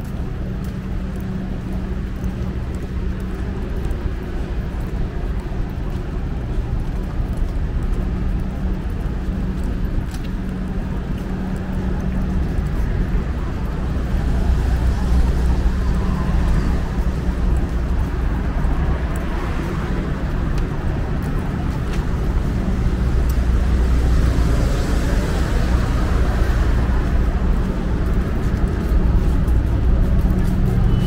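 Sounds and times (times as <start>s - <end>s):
cars driving past: 14.0s - 31.0s.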